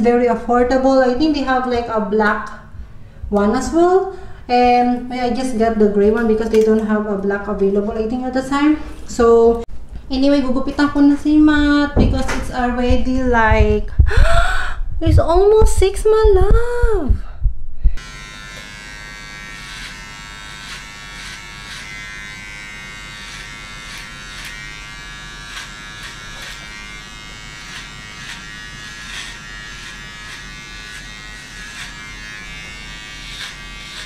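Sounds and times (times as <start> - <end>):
electric hair clippers buzzing: 18.0 - 34.0.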